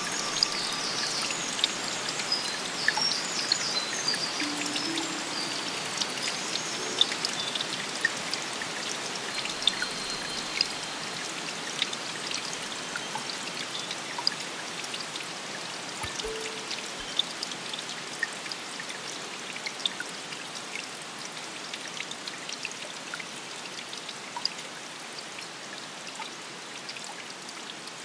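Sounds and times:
running water rushing: 0:00.0 - 0:28.0
water dripping: 0:00.0 - 0:28.0
soft low tone: 0:04.4 - 0:07.4, 0:16.0 - 0:17.4.

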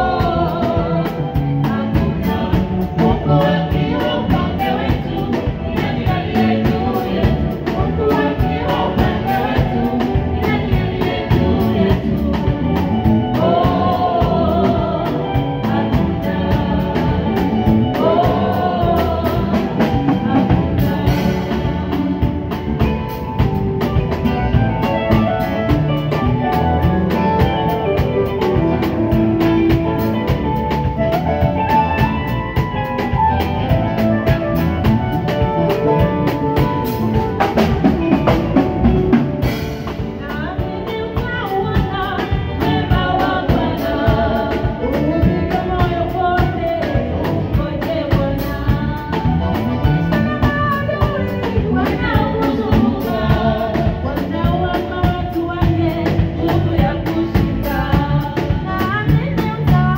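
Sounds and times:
women singing into microphones: 0:00.0 - 0:22.9, 0:39.9 - 0:59.9
drum kit: 0:00.0 - 0:59.9
electric bass: 0:00.0 - 0:59.9
keyboard: 0:00.0 - 0:59.9.

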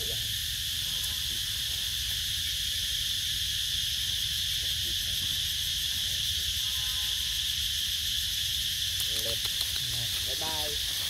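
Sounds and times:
forest insects chorus: 0:00.0 - 0:11.0.

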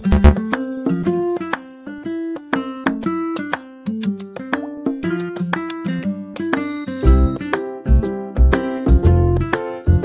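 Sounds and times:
quick melody of short notes: 0:00.0 - 0:00.4.

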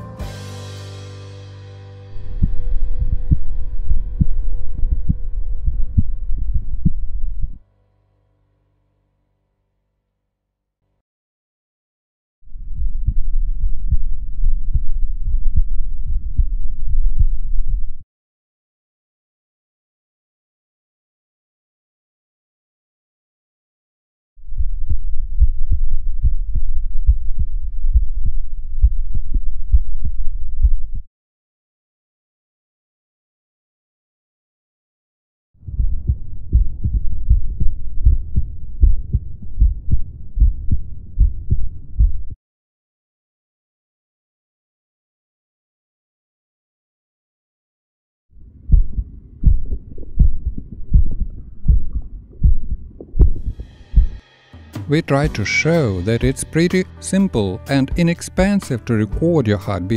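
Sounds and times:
steady low rumble: 0:02.1 - 0:07.6, 0:12.5 - 0:18.0, 0:24.4 - 0:31.1, 0:35.6 - 0:42.4, 0:48.4 - 0:56.4
heartbeat through stethoscope: 0:02.2 - 0:07.6, 0:12.7 - 0:18.0, 0:24.5 - 0:31.1, 0:35.6 - 0:42.4, 0:48.5 - 0:54.2.

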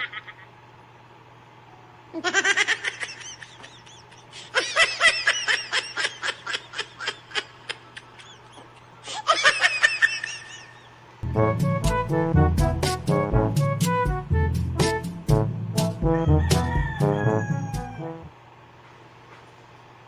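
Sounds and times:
high-pitched laughter: 0:00.0 - 0:00.6, 0:02.2 - 0:11.0
steady low hum: 0:10.4 - 0:20.0.

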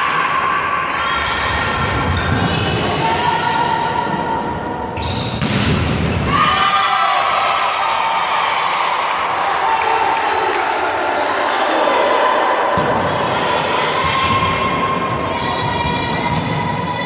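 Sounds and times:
people shouting and cheering: 0:00.0 - 0:05.0, 0:06.2 - 0:17.0
volleyball being hit: 0:05.3 - 0:06.2.

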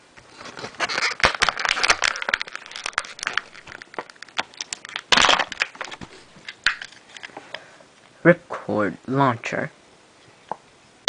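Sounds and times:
plastic packaging crinkling: 0:00.3 - 0:07.4.

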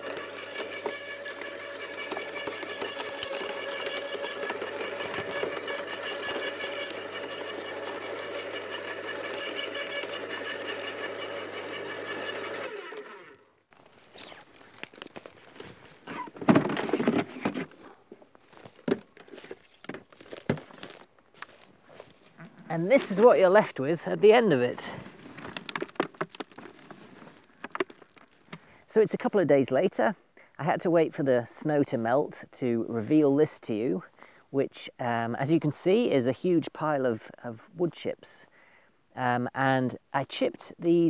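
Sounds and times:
garden chipper motor humming: 0:00.0 - 0:28.8
plastic clattering and rustling: 0:13.8 - 0:23.3, 0:24.8 - 0:28.6.

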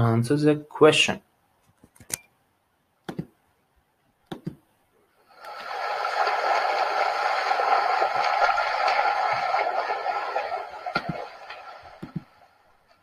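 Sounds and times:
steady rushing hiss: 0:05.3 - 0:13.0.

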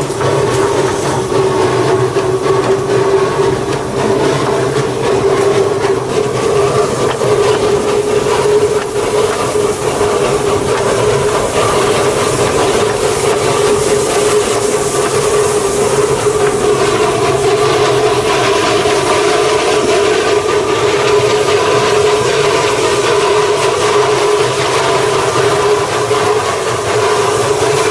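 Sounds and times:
constant hum: 0:00.0 - 0:27.9
steam locomotive wheels on track: 0:00.0 - 0:27.9.

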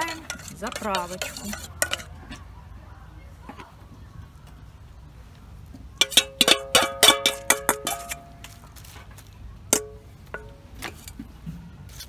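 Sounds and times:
metal spoon clinking on steel bowl: 0:00.0 - 0:02.2, 0:06.0 - 0:08.5, 0:09.7 - 0:11.2.

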